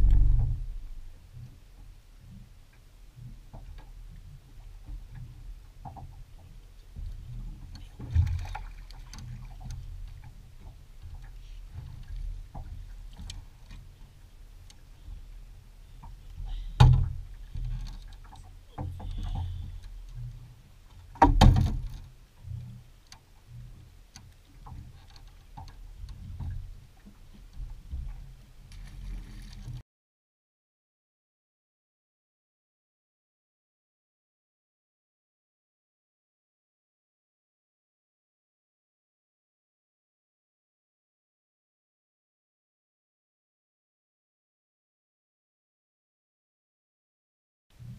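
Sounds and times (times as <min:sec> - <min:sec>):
wind buffeting microphone: 0:00.0 - 0:01.4.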